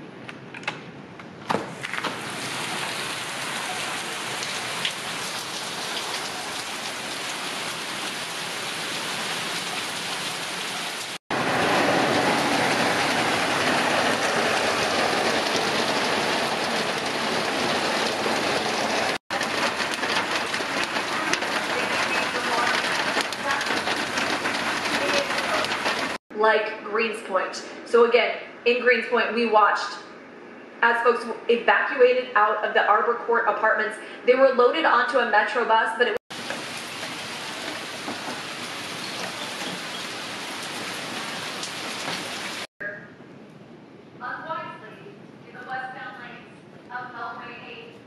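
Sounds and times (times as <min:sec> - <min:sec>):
heavy rain pouring: 0:01.7 - 0:26.2, 0:36.3 - 0:42.7.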